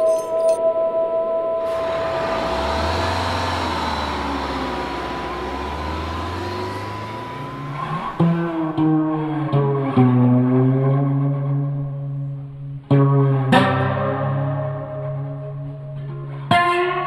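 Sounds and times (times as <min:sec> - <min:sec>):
steady high tone: 0:01.6 - 0:08.8
road noise: 0:01.6 - 0:09.0
vehicle engine rumble: 0:01.6 - 0:09.4
plucked guitar notes: 0:01.6 - 0:17.0.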